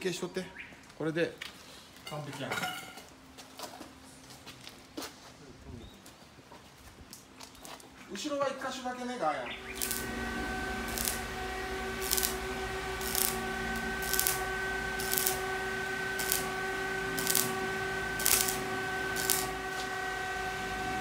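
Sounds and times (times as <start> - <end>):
steady welder hum: 9.4 - 21.0
welding arc crackling: 9.5 - 21.0.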